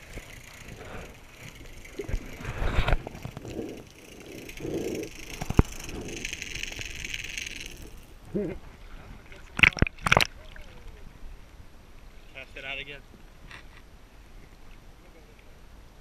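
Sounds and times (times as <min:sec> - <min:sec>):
lure rattling underwater: 0:00.0 - 0:08.3.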